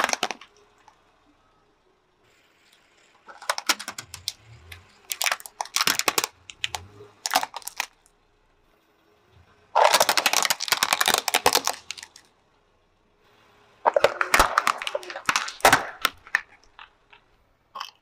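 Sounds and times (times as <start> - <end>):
plastic mask crushed crackling: 0.0 - 1.0, 3.2 - 8.0, 9.8 - 12.3, 13.8 - 18.0
plastic toys cracking under tyre: 0.0 - 1.0, 2.7 - 8.1, 9.8 - 12.3, 13.8 - 18.0.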